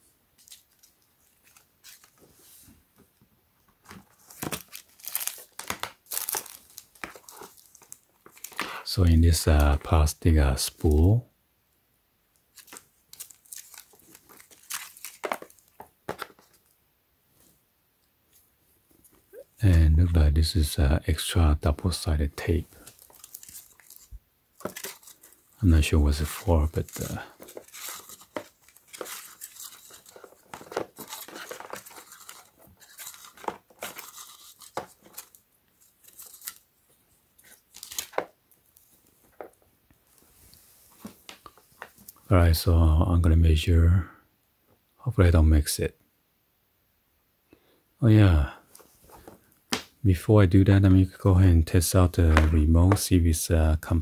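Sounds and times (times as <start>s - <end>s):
plastic packaging rustling and clicking: 3.6s - 8.8s, 12.5s - 16.7s, 22.7s - 36.7s, 37.4s - 39.6s
tape strip peeling and crinkling: 4.4s - 8.6s, 12.5s - 16.2s, 22.8s - 25.5s, 26.4s - 36.7s, 37.4s - 38.8s.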